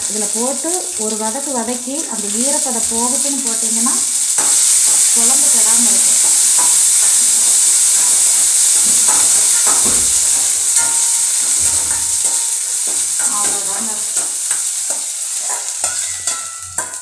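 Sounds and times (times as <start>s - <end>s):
onions sizzling in hot oil: 0.0s - 17.0s
metal ladle scraping pan: 4.3s - 17.0s
ringing metal clinks: 15.9s - 17.0s.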